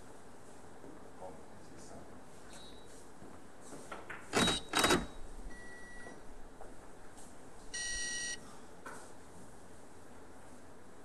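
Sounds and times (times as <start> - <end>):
faint electronic beep: 5.5 - 6.2, 7.8 - 8.4.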